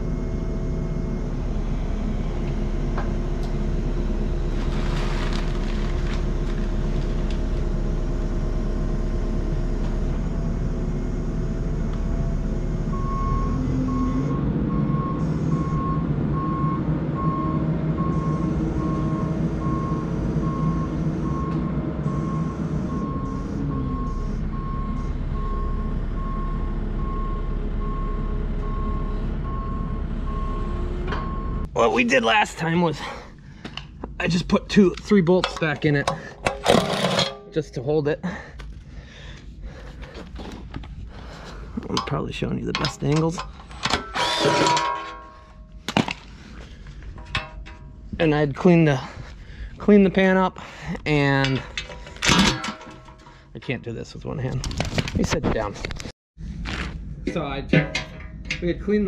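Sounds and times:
loader engine running: 0:00.0 - 0:37.3
reversing alarm beeps: 0:09.7 - 0:31.7.

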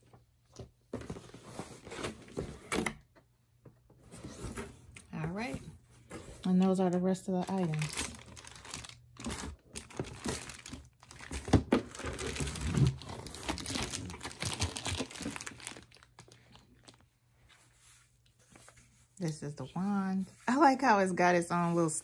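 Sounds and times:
plastic bags crinkling: 0:06.9 - 0:17.1.

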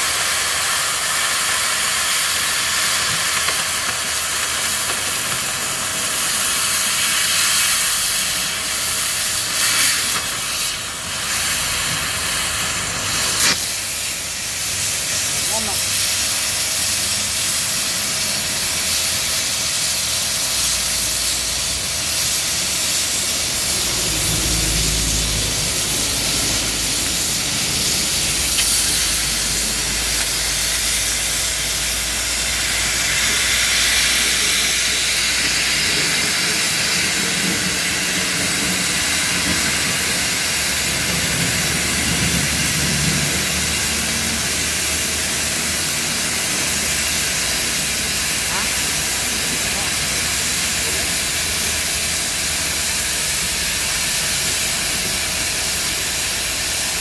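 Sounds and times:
cutting torch hissing: 0:00.0 - 0:57.0
low rumble: 0:22.6 - 0:32.9.

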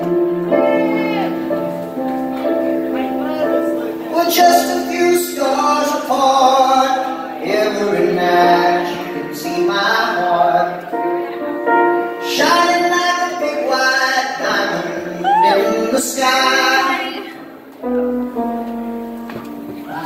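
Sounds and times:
sustained keyboard chords: 0:00.0 - 0:15.1, 0:16.0 - 0:20.0
man singing: 0:04.0 - 0:11.2, 0:12.2 - 0:17.4.

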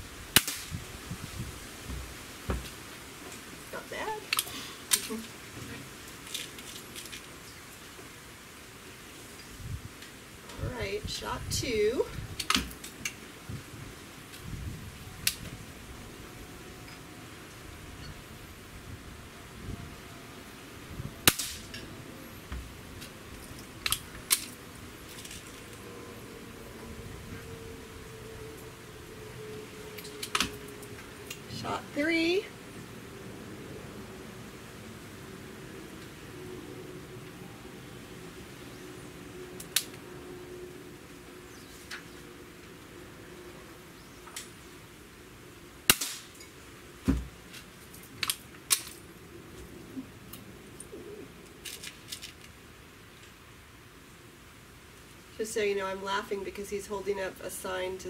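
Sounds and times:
dull thump: 0:01.8 - 0:02.7, 0:47.0 - 0:47.3
air rifle firing crack: 0:45.9 - 0:46.3.

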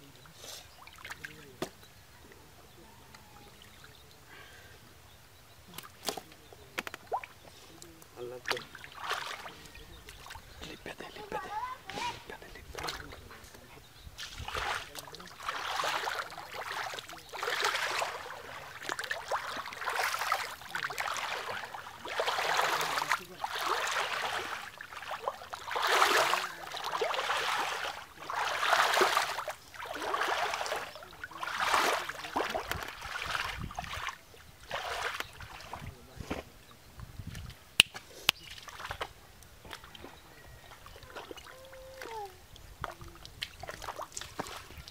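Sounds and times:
muddy water sloshing and splashing: 0:00.7 - 0:01.8, 0:05.7 - 0:36.5, 0:38.4 - 0:44.9
sharp click: 0:37.8 - 0:38.0.

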